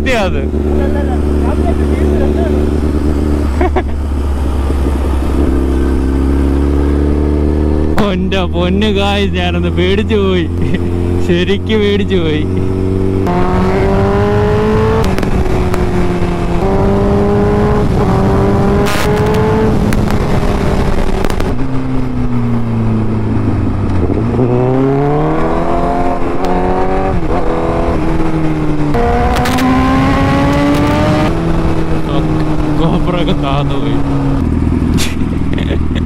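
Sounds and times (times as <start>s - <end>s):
wind rushing: 0.0s - 7.9s, 22.3s - 32.8s
motorcycle engine accelerating: 0.0s - 36.0s.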